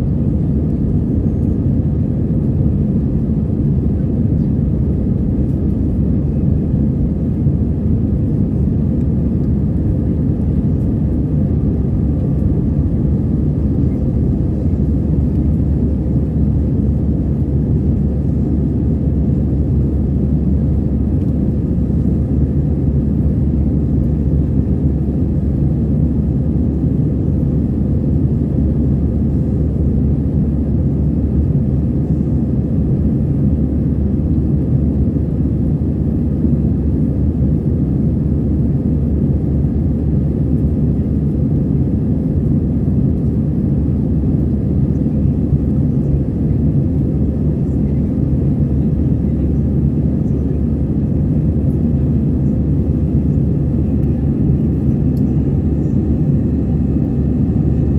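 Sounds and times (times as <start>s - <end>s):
jet engines rumbling in cabin: 0.0s - 57.9s.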